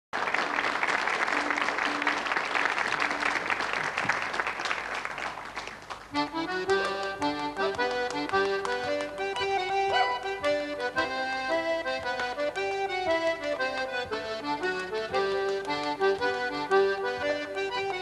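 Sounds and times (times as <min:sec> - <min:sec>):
accordion dance tune: 0:00.2 - 0:04.5, 0:05.8 - 0:18.0
audience applause: 0:00.2 - 0:06.2.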